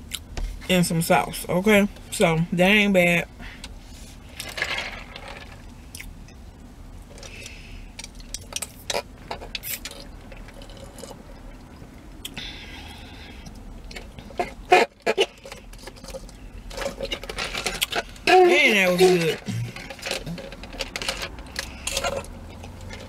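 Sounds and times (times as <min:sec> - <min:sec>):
steady low hum: 0:00.0 - 0:23.0
cup and lid clicks and rustles: 0:13.9 - 0:18.2, 0:19.0 - 0:23.0.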